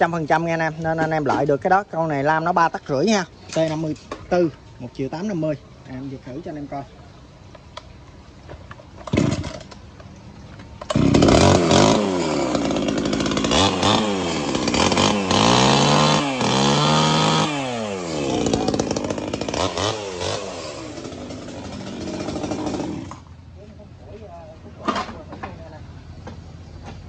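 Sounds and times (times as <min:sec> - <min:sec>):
chainsaw pull-started: 0:09.0 - 0:09.8, 0:10.8 - 0:23.3
chainsaw revving: 0:09.0 - 0:09.8, 0:10.8 - 0:23.4.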